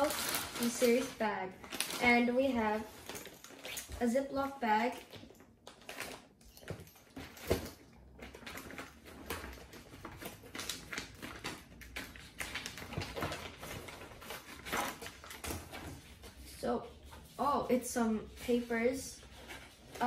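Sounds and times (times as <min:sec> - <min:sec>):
plastic bag crinkling: 0:00.0 - 0:15.8.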